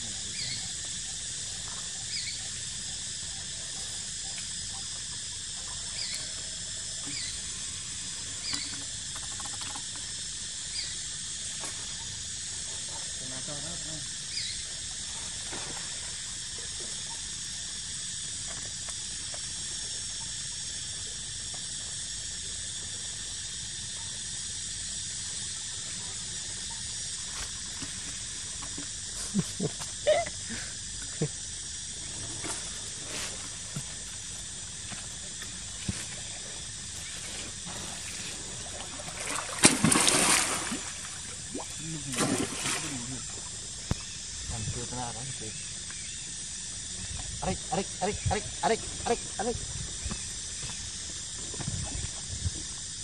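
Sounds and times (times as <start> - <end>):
outdoor ambience hiss: 0.0 - 53.0
faint water splashes: 37.2 - 44.1.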